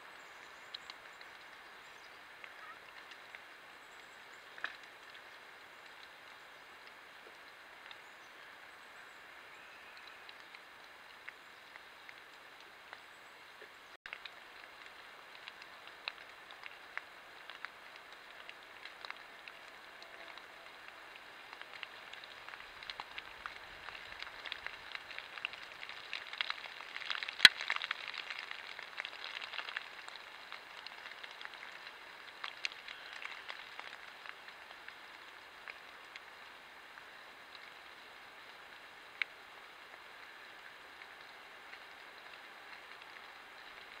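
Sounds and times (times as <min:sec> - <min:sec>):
dry leaves and sticks crackling: 0:00.1 - 0:44.0
stick snapping: 0:21.6 - 0:30.2.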